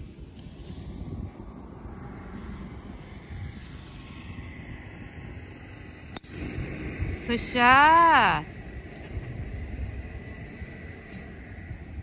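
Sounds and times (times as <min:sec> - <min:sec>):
low background rumble: 0:00.0 - 0:12.0
golf club striking ball: 0:06.1 - 0:06.8.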